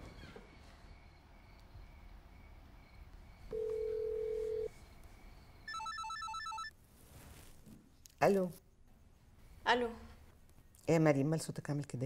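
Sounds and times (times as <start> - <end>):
phone dial tone: 3.5 - 4.7, 5.7 - 6.7
warbling electronic phone ring: 5.7 - 6.7.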